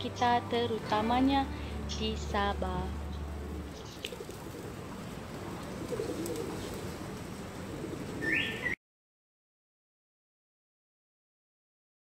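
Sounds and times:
street noise: 0.0s - 8.8s
pigeons cooing: 3.1s - 8.8s.

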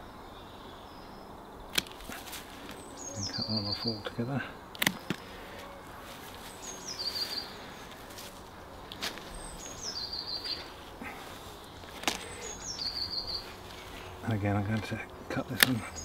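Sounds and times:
songbird singing: 0.0s - 16.0s
sharp clicks: 1.7s - 2.1s, 4.7s - 5.3s, 14.7s - 16.0s.

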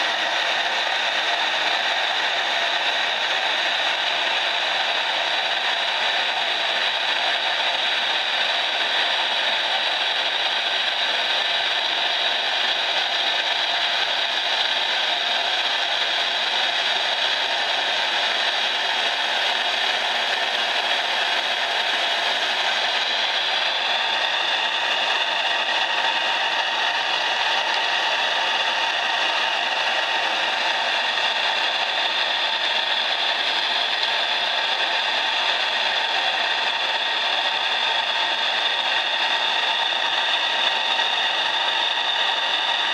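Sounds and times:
steam engine hissing: 0.0s - 42.9s.

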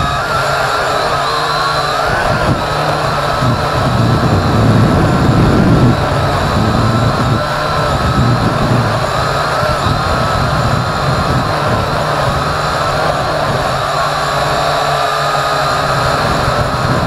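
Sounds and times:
drone propellers whining: 0.0s - 17.0s
low rumble: 2.4s - 13.8s.

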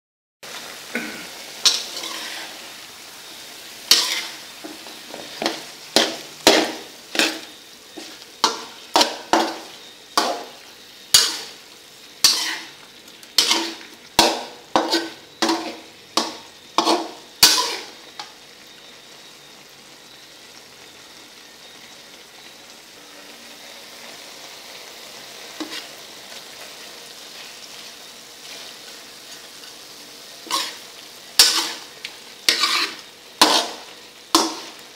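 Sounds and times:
oil sizzling: 0.4s - 34.9s
metal spatula scraping wok: 0.6s - 18.3s, 25.4s - 34.9s.

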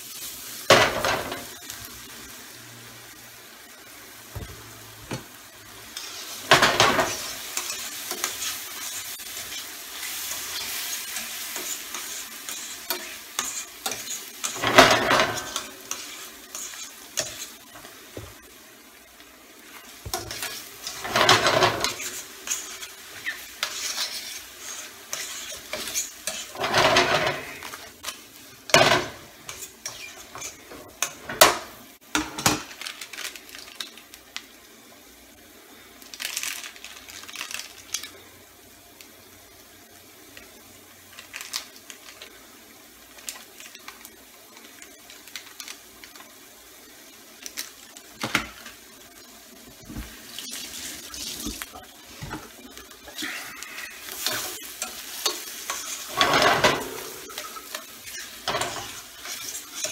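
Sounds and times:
faint sizzle: 0.0s - 59.9s
utensil scraping through pan: 6.0s - 17.6s, 20.1s - 28.1s, 28.7s - 31.2s, 50.4s - 59.9s.

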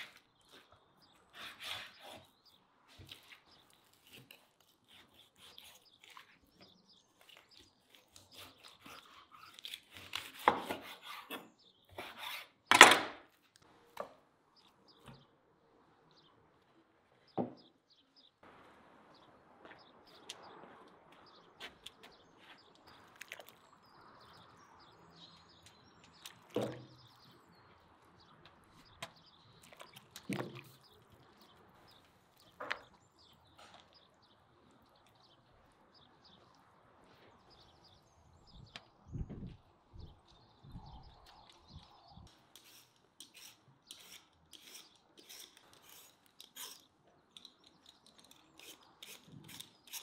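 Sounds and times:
birds chirping: 13.9s - 50.0s
sharp knocks and clunks: 17.4s - 17.7s, 26.5s - 27.0s.

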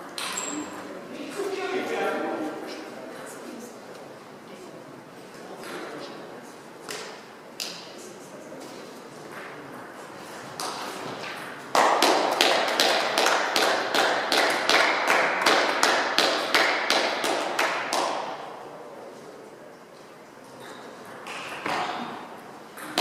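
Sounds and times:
spectators clapping: 11.7s - 18.4s.

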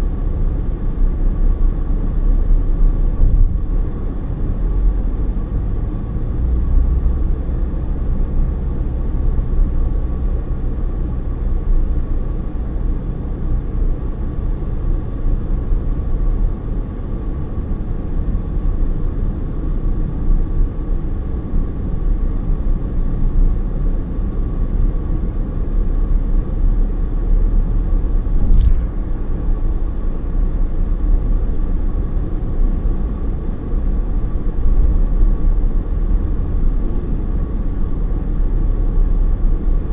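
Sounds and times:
car driving rumble: 0.0s - 39.9s
sharp click: 28.4s - 28.9s.

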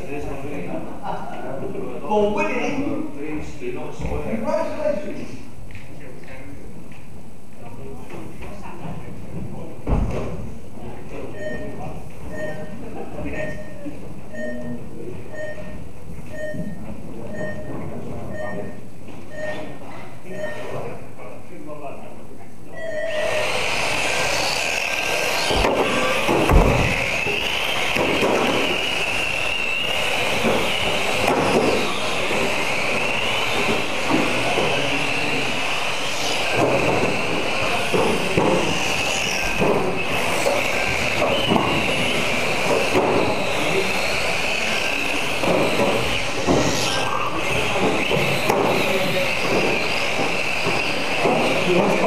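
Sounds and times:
toy car motors whining: 22.8s - 52.0s
sharp knocks: 25.5s - 27.2s.

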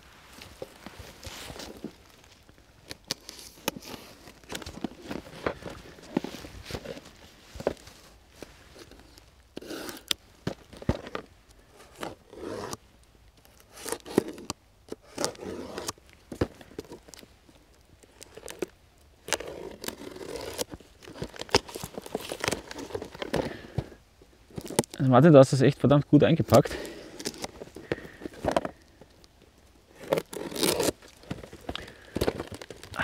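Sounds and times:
cardboard box rustling: 0.0s - 12.8s, 18.0s - 25.0s, 26.5s - 29.0s, 29.8s - 33.0s
blade slicing packing tape: 29.9s - 31.0s.

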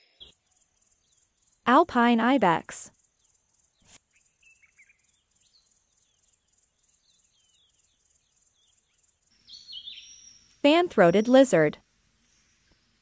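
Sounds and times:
small birds chirping: 0.0s - 13.0s
high insect trill: 0.1s - 1.7s, 2.9s - 10.6s.

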